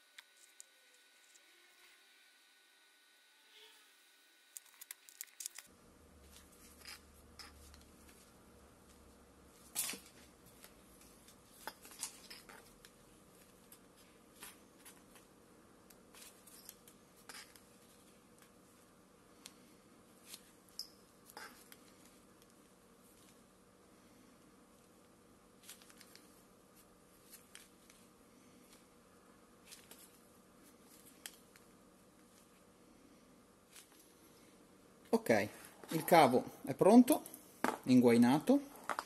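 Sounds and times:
clicks and rustles of handling cable: 4.5 - 23.4, 24.4 - 29.0, 29.6 - 32.6, 33.7 - 34.4.

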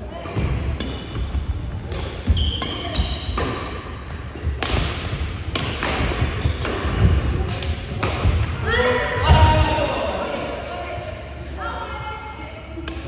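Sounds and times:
shoes squeaking on wooden floor: 1.1 - 3.4, 6.3 - 8.6
rackets hitting shuttlecock: 1.9 - 8.5.

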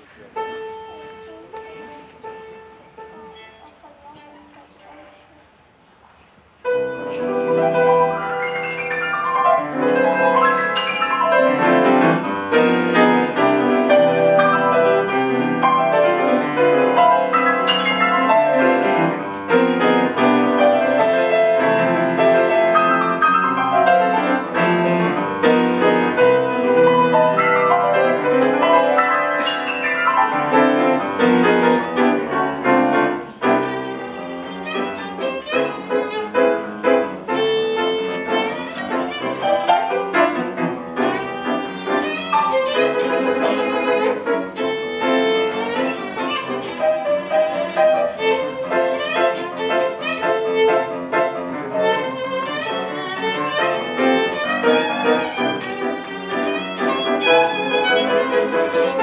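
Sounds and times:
grand piano playing jazz: 0.0 - 5.1, 6.6 - 59.0
violin: 0.0 - 5.4, 6.6 - 59.0.

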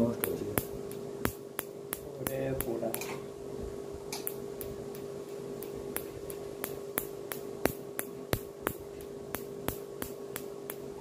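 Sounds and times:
steady hum: 0.0 - 11.0
laser pulses clicking: 4.1 - 11.0.

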